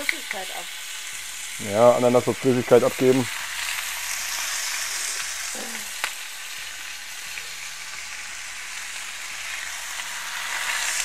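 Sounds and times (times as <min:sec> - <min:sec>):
food sizzling in a pan: 0:00.0 - 0:11.0.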